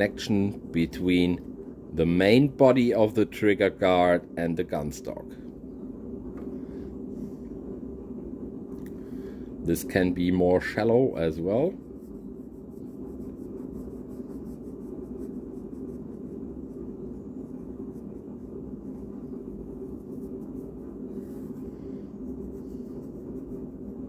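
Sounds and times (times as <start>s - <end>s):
low room hum: 0.0s - 24.0s
pencil scratching on paper: 11.8s - 24.0s.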